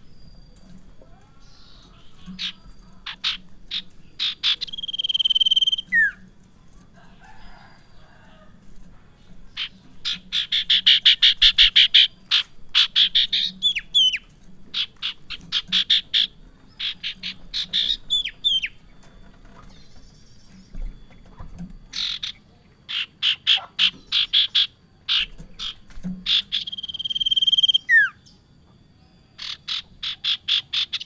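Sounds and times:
bird singing whistles and notes: 4.2 - 6.2, 26.3 - 28.4.

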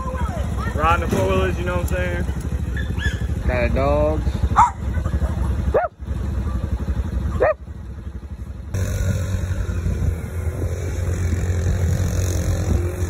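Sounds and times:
four-wheeler engines running: 0.0 - 13.0
small dog barking: 2.7 - 3.3, 4.5 - 4.9, 5.7 - 6.0, 7.4 - 7.6.

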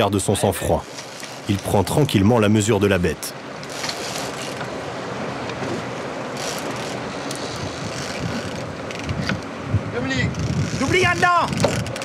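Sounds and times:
wind and sea noise: 0.0 - 12.0
wind buffeting microphone: 7.1 - 12.0.

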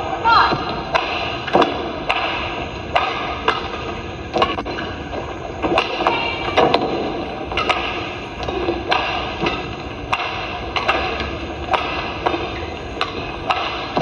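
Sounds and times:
steady background noise: 0.0 - 14.0
rackets striking shuttlecock: 0.6 - 4.9, 7.5 - 14.0.

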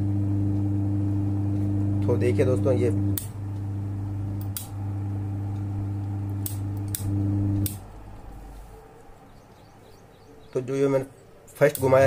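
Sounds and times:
fan motor humming: 0.0 - 12.0
rotary switch clicking: 3.1 - 3.7, 4.3 - 4.8, 5.5 - 7.9, 11.6 - 12.0.

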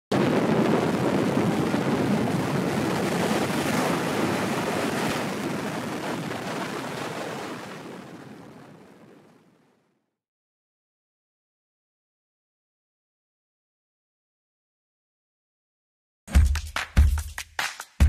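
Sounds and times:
ocean surf breaking on rocks: 0.2 - 8.8.

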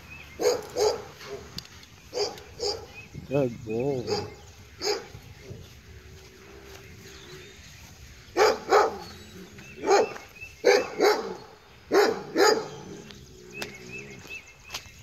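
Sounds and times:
dog barking: 0.4 - 3.0, 4.0 - 5.1, 8.4 - 9.1, 9.8 - 12.8.

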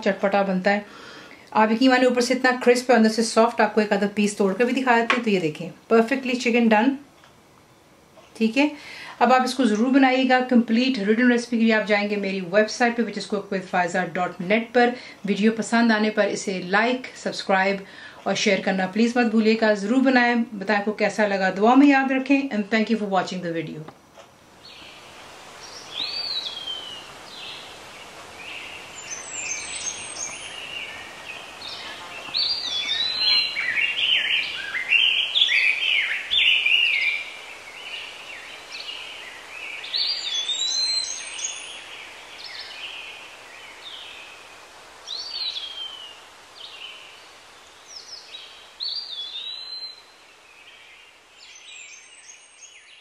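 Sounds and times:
faint steady hiss: 0.0 - 53.0
birds chirping and singing: 25.6 - 44.5.

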